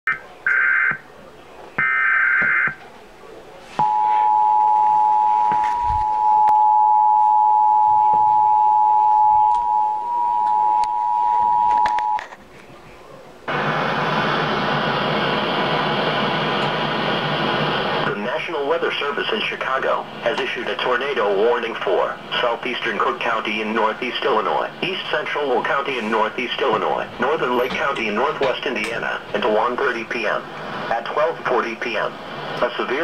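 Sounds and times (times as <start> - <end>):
two-tone alert signal: 3.8 - 12.2.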